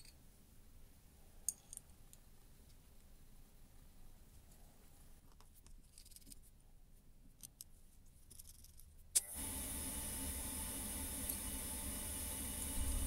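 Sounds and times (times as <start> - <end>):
small steel parts clinking: 1.5 - 2.3
steady hiss: 9.2 - 13.0.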